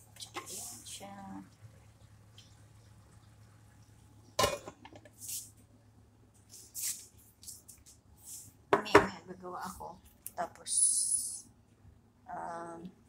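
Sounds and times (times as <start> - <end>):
low steady hum: 0.0 - 13.0
cookware clanking: 4.4 - 4.9.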